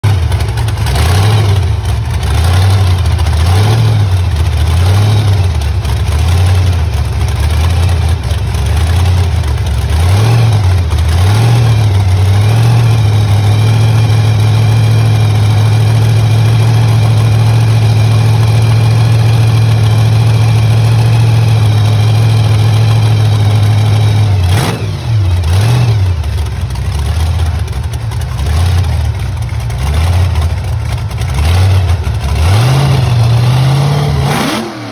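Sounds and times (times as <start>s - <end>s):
loud engine idling and revving: 0.0s - 34.9s.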